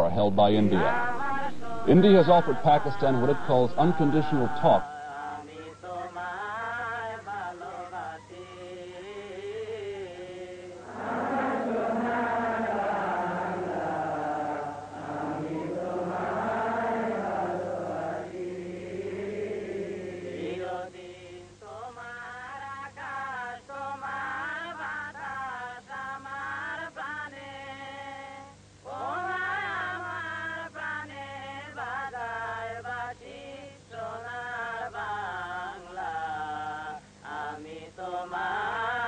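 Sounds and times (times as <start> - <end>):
person chant-like singing: 0.0 - 22.4
steady hum: 0.0 - 39.0.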